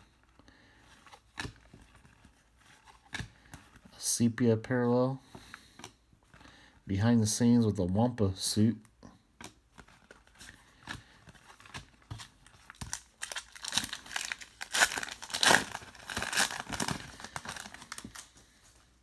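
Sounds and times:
foil wrapper crinkling: 0:11.0 - 0:18.4.

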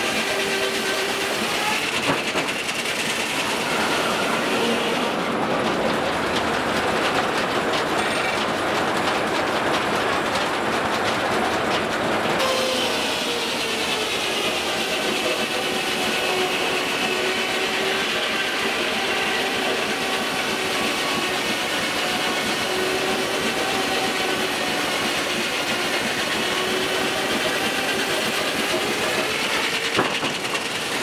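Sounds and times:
circular saw blade cutting log: 0:00.0 - 0:05.2, 0:12.4 - 0:31.0
carriage and mill machinery clatter: 0:00.0 - 0:31.0.

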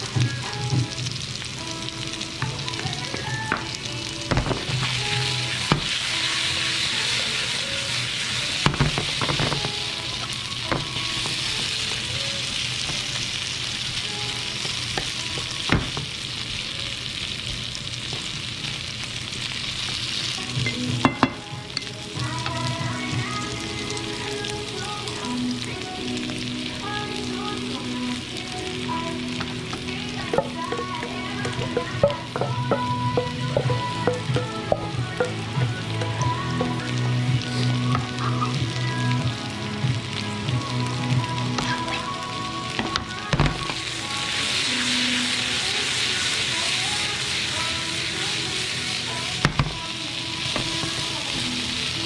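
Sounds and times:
potatoes sizzling in a frying pan: 0:00.0 - 0:52.0
wooden spatula knocking on pan: 0:30.3 - 0:36.8.

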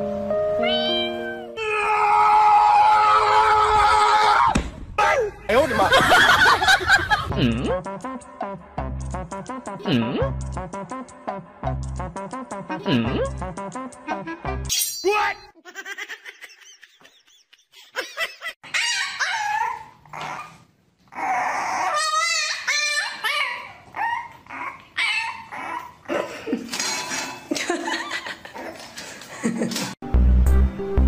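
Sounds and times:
background music: 0:00.0 - 0:01.7, 0:06.5 - 0:14.7, 0:30.0 - 0:31.0
puppies barking: 0:21.5 - 0:26.0.

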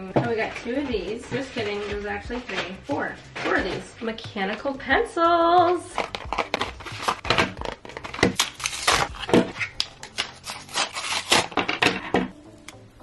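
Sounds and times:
plastic packaging crinkling: 0:05.8 - 0:11.9.

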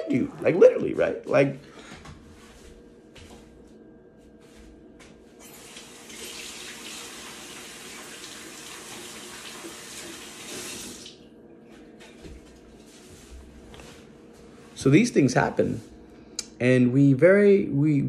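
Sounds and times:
tap water running into sink: 0:05.4 - 0:11.2.

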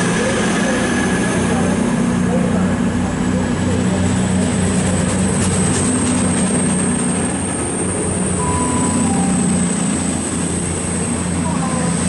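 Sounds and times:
diesel train passing with hum: 0:00.0 - 0:12.0.

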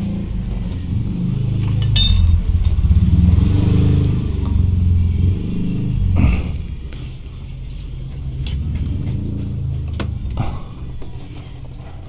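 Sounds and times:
engine rumble with fluttering pulse: 0:00.0 - 0:12.0
socket wrench metal clinks: 0:01.7 - 0:02.8.

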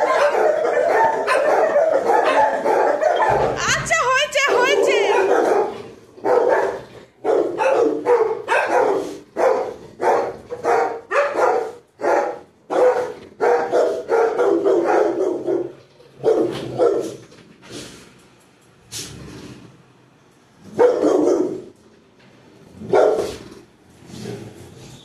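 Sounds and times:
dogs barking: 0:00.0 - 0:17.3, 0:20.7 - 0:21.8, 0:22.8 - 0:23.4.

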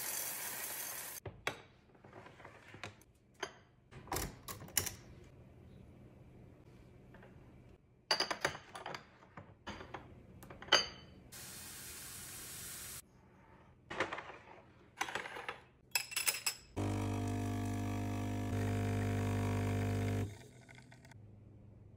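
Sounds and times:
espresso machine pump humming: 0:16.8 - 0:21.1.

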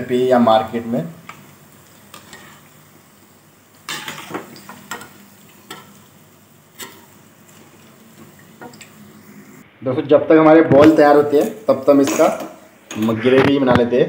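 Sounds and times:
oil sizzling: 0:00.0 - 0:09.7
metal spatula scraping pan: 0:03.9 - 0:06.0.

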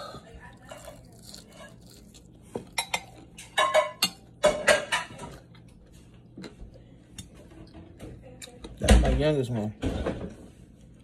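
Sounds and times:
fried chicken being chewed: 0:00.4 - 0:03.7.

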